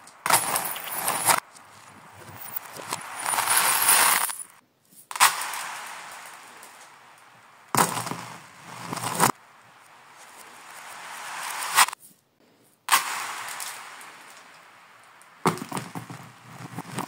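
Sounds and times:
plastic beads clattering on floor: 0:02.4 - 0:04.6.

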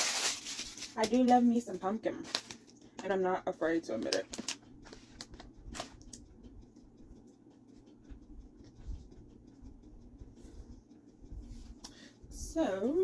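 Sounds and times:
paper wrapper rustling: 0:00.0 - 0:01.4, 0:02.2 - 0:02.7, 0:04.1 - 0:06.0.

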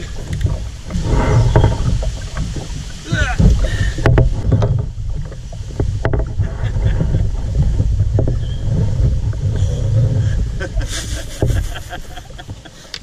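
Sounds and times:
low rumble: 0:00.0 - 0:12.7
kayak hull knocking: 0:00.0 - 0:13.0.

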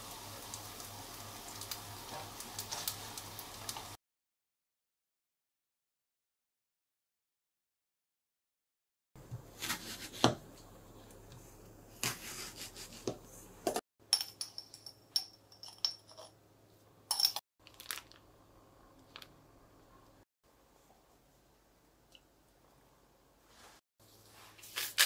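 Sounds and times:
spoon clinking on metal pot: 0:14.1 - 0:16.3.

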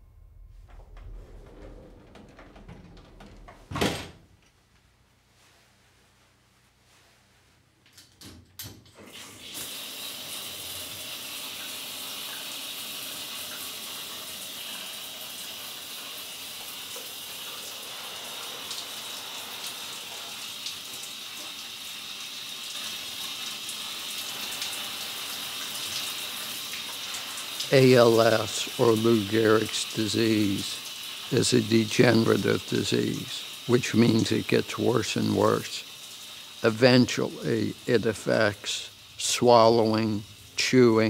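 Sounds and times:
shower head spraying water: 0:09.4 - 0:41.0.

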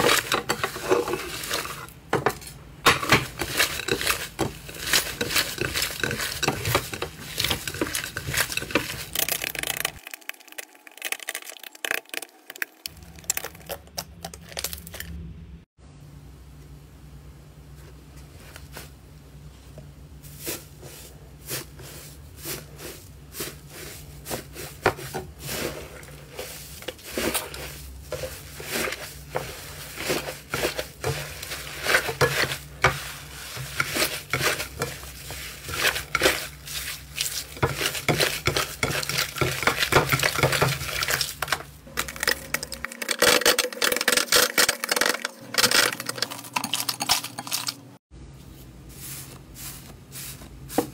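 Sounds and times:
slime crackling and squishing: 0:03.3 - 0:15.1.

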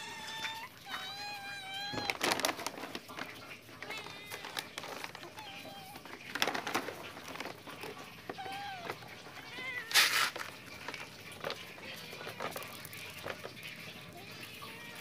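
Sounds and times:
cat meowing: 0:00.0 - 0:02.7, 0:03.8 - 0:06.3, 0:07.9 - 0:10.8, 0:11.5 - 0:13.2, 0:14.1 - 0:15.0.

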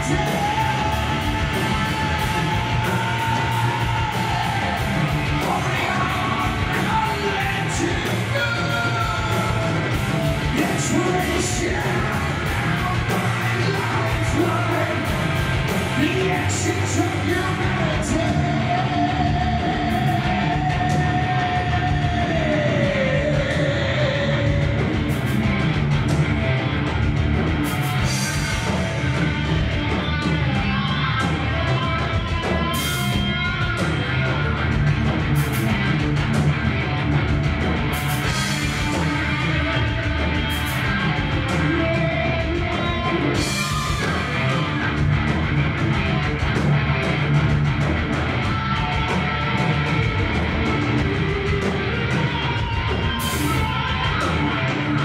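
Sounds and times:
person singing: 0:00.0 - 0:24.9
live rock band playing: 0:00.0 - 0:55.0.

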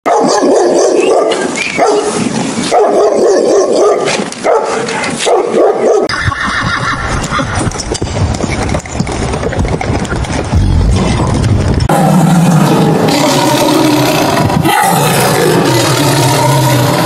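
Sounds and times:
dog barking: 0:00.1 - 0:06.1.

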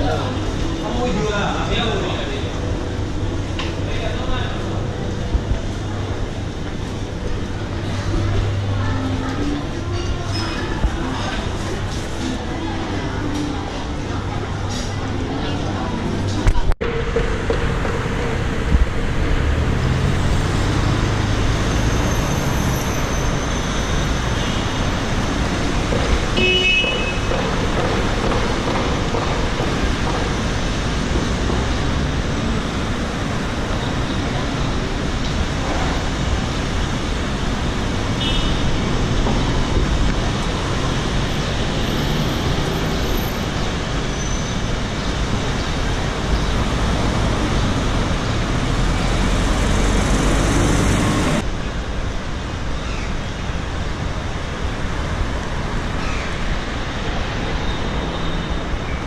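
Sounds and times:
cars driving past: 0:10.8 - 0:51.8.

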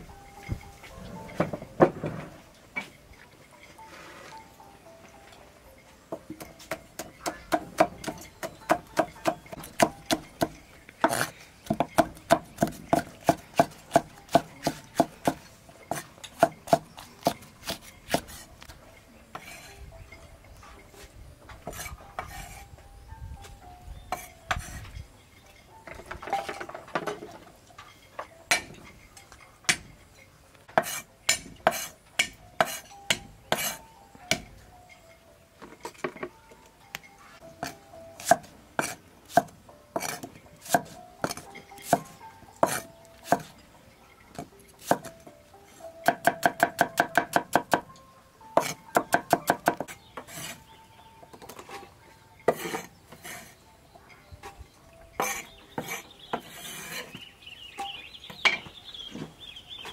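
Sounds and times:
cleaver chopping on wooden block: 0:06.4 - 0:18.4, 0:46.0 - 0:47.9.

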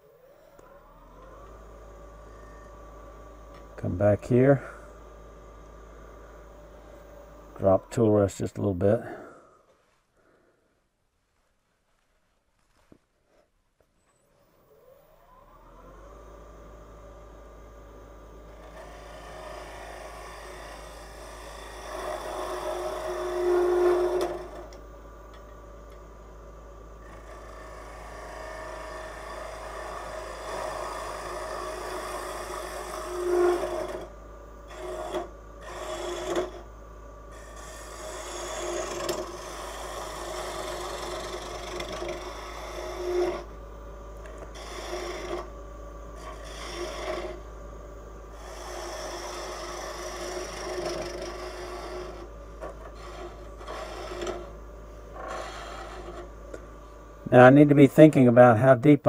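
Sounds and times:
gouge scraping spinning wood: 0:18.2 - 0:26.1, 0:26.9 - 0:57.8.

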